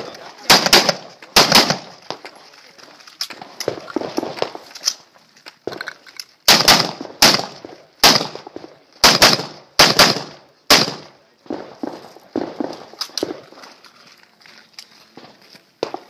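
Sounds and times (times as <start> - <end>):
rifle shots: 0.5 - 2.2, 6.5 - 13.5.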